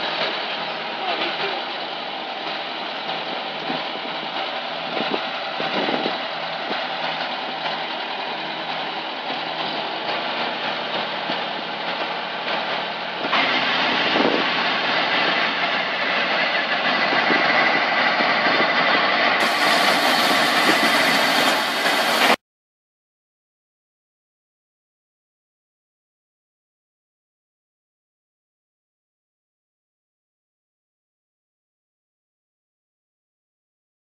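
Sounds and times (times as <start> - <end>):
straw chopper shredding: 0.0 - 22.4
tractor engine under load: 0.0 - 22.4.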